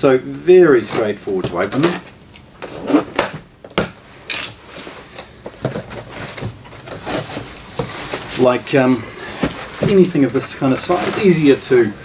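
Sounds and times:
box cutter slitting tape: 2.6s - 4.6s
cardboard rustling and clicking: 5.4s - 8.6s, 9.2s - 11.7s.

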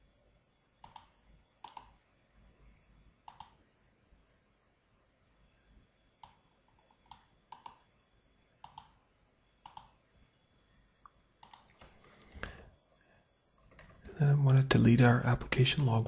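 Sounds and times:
mouse and keyboard clicks: 0.8s - 2.0s, 3.3s - 3.6s, 6.2s - 7.9s, 8.6s - 9.0s, 9.6s - 10.0s, 11.4s - 12.6s.

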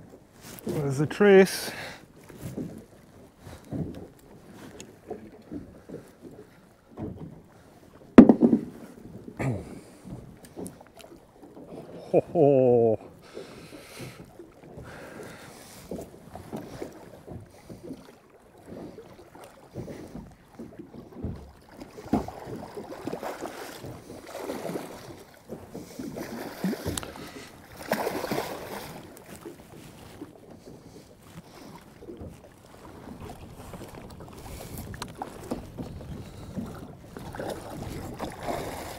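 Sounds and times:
water slapping against boat hull: 0.0s - 12.2s, 13.0s - 38.9s
wind buffeting microphone: 32.0s - 38.9s.

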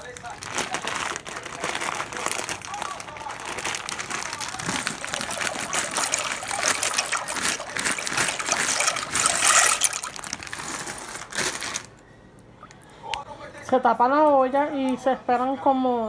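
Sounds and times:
dry pasta poured into water: 0.0s - 11.9s.

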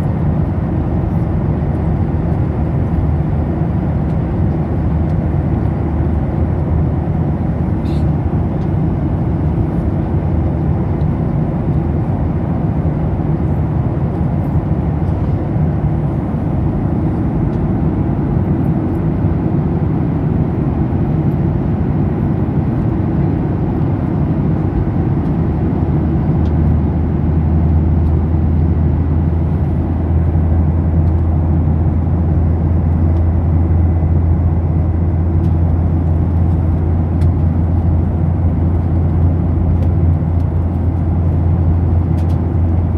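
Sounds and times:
airliner engines droning: 0.0s - 42.9s.

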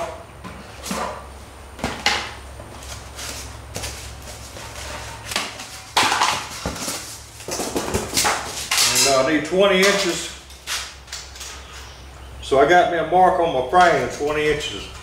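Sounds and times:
steady low hum: 0.0s - 15.0s
scraping and rustling handling noises: 2.6s - 12.0s.

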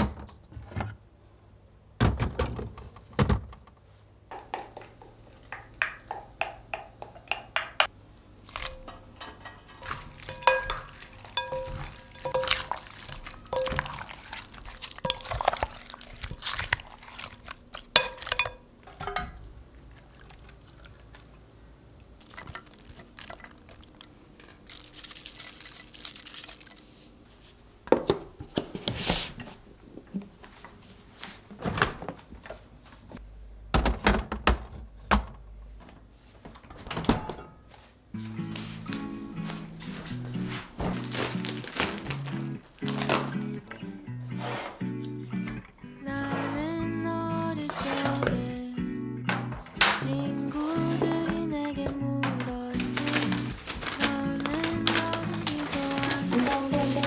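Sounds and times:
plastic containers knocking: 4.3s - 7.9s
spatulas clinking against glass: 8.6s - 14.4s, 18.0s - 19.4s
wet squelching of food mixing: 9.5s - 18.6s, 19.6s - 27.1s, 52.7s - 57.0s.

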